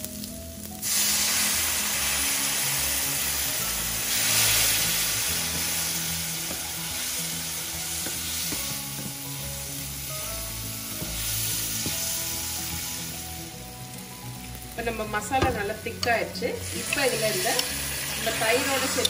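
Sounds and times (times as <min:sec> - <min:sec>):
masala sizzling and bubbling: 0:00.0 - 0:19.0
water pouring into a pan: 0:16.6 - 0:19.0.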